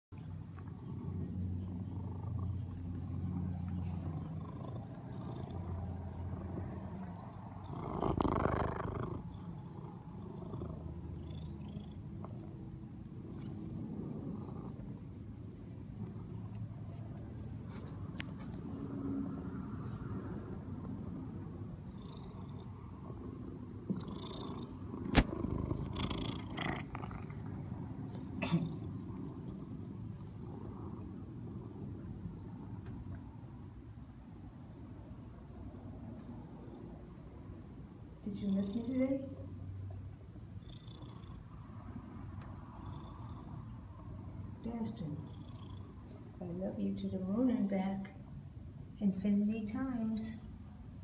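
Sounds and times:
cat purring: 0:00.4 - 0:16.6, 0:20.8 - 0:33.4, 0:40.3 - 0:46.8.

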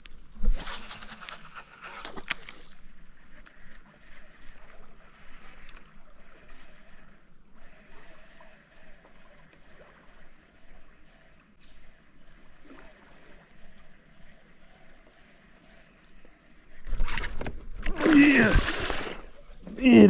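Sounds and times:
water lapping against kayak: 0:00.2 - 0:20.0
loud water splash: 0:17.9 - 0:19.3.

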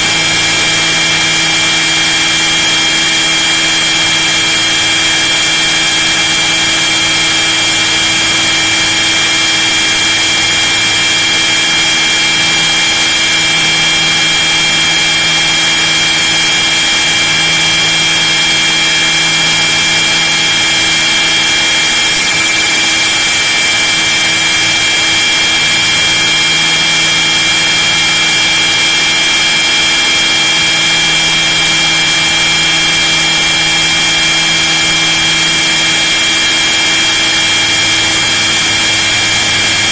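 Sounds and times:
model helicopter mechanical whine: 0:00.0 - 0:39.9.

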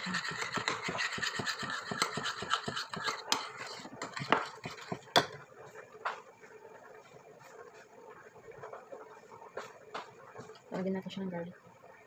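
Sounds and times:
utensil clinking and scraping in bowl: 0:00.0 - 0:05.4.

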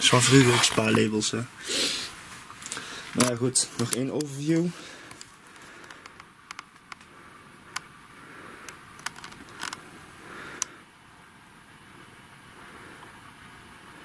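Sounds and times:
handling clicks and taps: 0:03.2 - 0:04.4, 0:05.0 - 0:07.1, 0:08.7 - 0:09.8.

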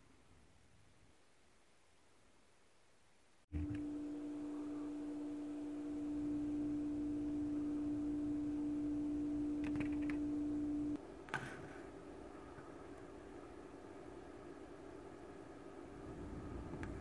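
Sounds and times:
low hum: 0:03.5 - 0:17.0
steady humming tone: 0:03.5 - 0:17.0.

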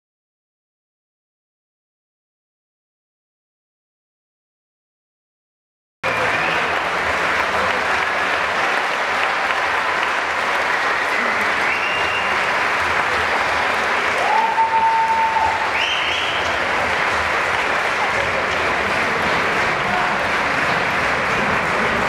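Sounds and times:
audience applauding: 0:06.0 - 0:22.0.

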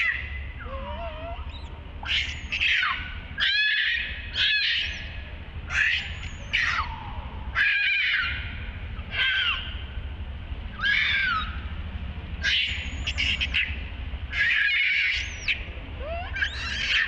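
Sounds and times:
baby monkey screaming: 0:00.0 - 0:09.8, 0:10.7 - 0:11.7, 0:12.4 - 0:17.0.

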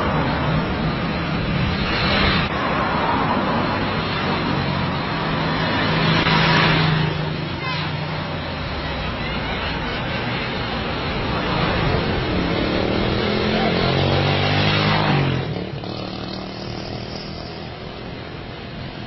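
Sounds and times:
street traffic: 0:00.0 - 0:19.0
engine revving: 0:11.5 - 0:17.8.

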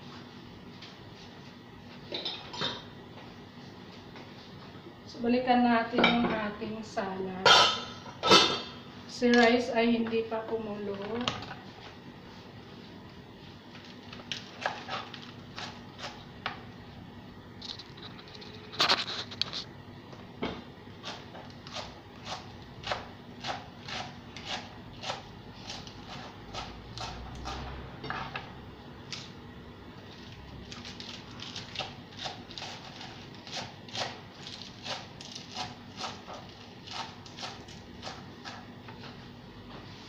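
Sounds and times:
knife chopping cabbage on cutting board: 0:14.5 - 0:16.2, 0:21.0 - 0:27.7, 0:30.8 - 0:38.7.

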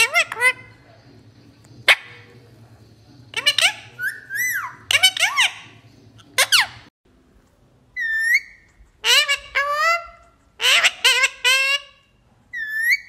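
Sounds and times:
parakeet harsh calls: 0:00.0 - 0:00.8, 0:03.3 - 0:06.9, 0:08.0 - 0:13.0.

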